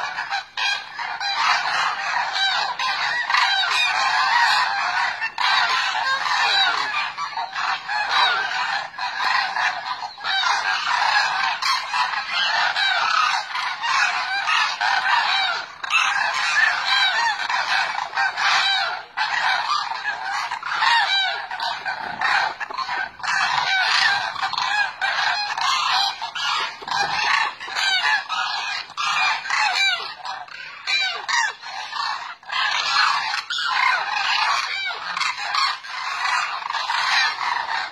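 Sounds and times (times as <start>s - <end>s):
flock of cranes honking: 0.0s - 37.9s.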